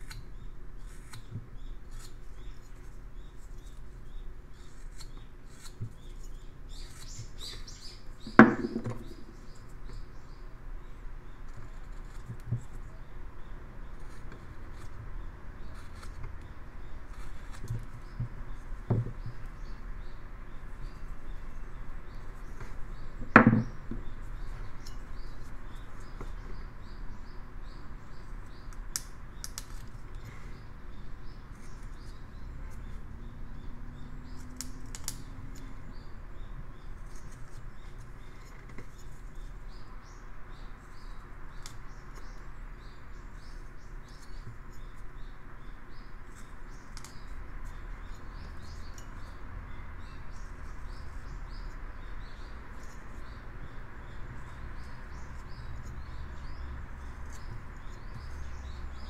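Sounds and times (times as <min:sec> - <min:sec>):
knife carving wood: 0:00.0 - 0:10.1, 0:11.4 - 0:13.0, 0:13.8 - 0:19.7, 0:28.4 - 0:30.4, 0:31.2 - 0:33.1, 0:34.3 - 0:35.8, 0:36.8 - 0:39.8, 0:43.3 - 0:45.3, 0:46.3 - 0:49.4, 0:54.1 - 0:59.0
sharp knock: 0:08.3 - 0:09.1.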